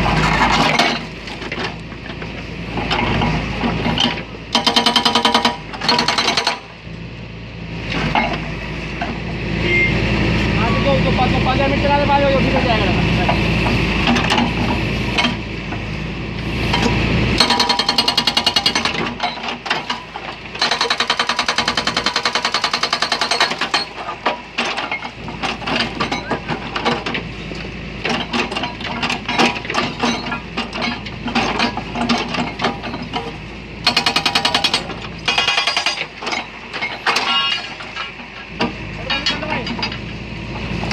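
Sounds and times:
hydraulic breaker hammering concrete: 0:04.5 - 0:06.7, 0:16.8 - 0:19.3, 0:20.6 - 0:24.0, 0:33.8 - 0:36.2.

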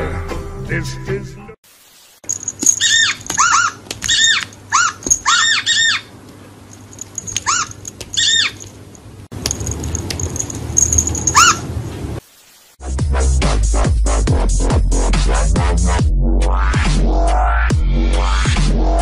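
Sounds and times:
high squeaks from tablet game: 0:02.8 - 0:06.0, 0:07.4 - 0:08.6.

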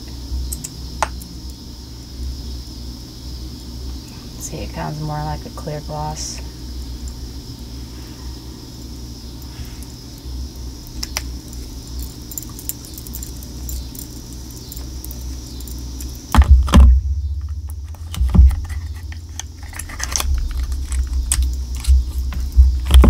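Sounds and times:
bumps and knocks: 0:16.3 - 0:23.0.

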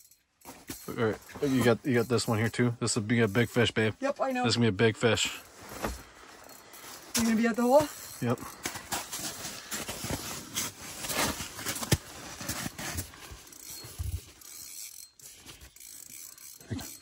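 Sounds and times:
fishing gear clicks and scrapes: 0:05.2 - 0:17.0.

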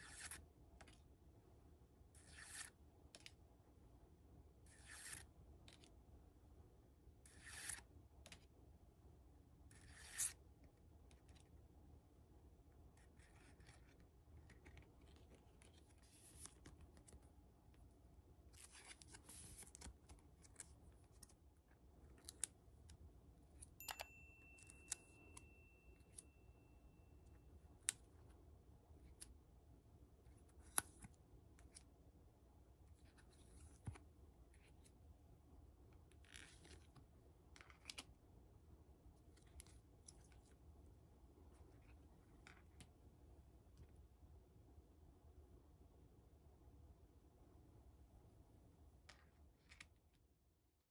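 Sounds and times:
cards shuffling by hand: 0:00.0 - 0:01.1, 0:02.1 - 0:03.4, 0:04.7 - 0:06.0, 0:07.2 - 0:08.6, 0:09.7 - 0:11.6, 0:13.0 - 0:23.0, 0:30.3 - 0:31.9, 0:32.9 - 0:35.0, 0:35.9 - 0:38.2, 0:49.0 - 0:50.2
thin high steady tone: 0:23.8 - 0:27.1.

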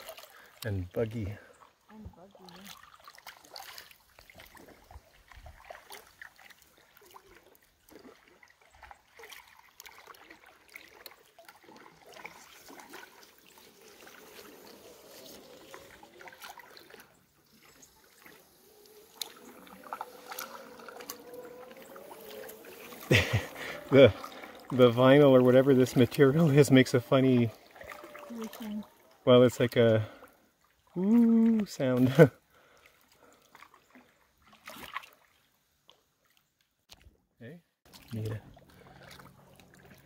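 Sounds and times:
water dripping off paddle: 0:00.0 - 0:37.1, 0:37.9 - 0:40.0
paddle dipping into water: 0:00.0 - 0:37.2, 0:37.8 - 0:40.0
reeds squeaking against hull: 0:12.1 - 0:29.1.

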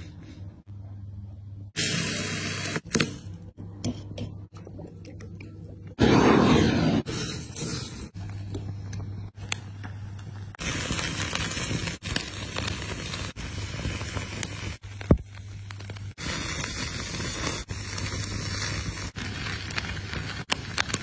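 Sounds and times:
flames burning and crackling: 0:01.8 - 0:03.1, 0:06.0 - 0:21.0.

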